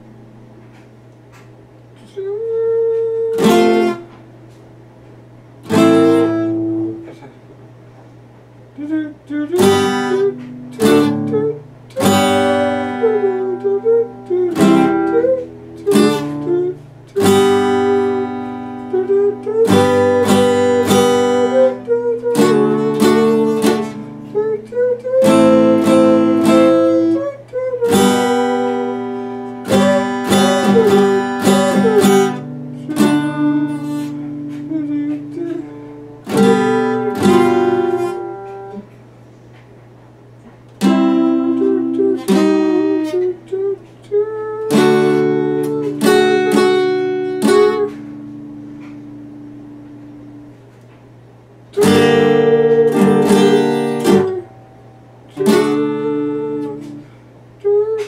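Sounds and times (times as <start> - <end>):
acoustic guitar strumming: 0.0 - 7.4, 8.7 - 39.6, 40.4 - 58.0
person singing: 2.0 - 4.1, 8.8 - 38.8, 40.9 - 48.0, 51.8 - 54.6, 55.3 - 58.0.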